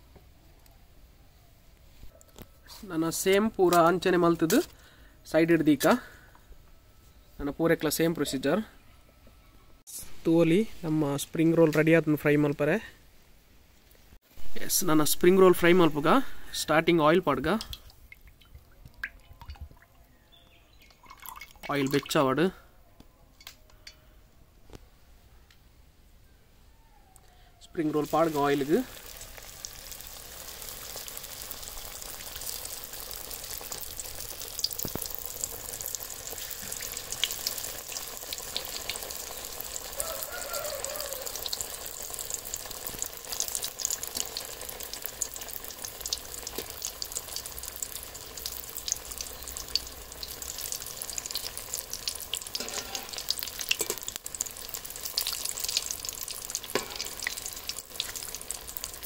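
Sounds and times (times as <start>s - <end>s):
food deep-frying in hot oil: 27.8s - 59.0s.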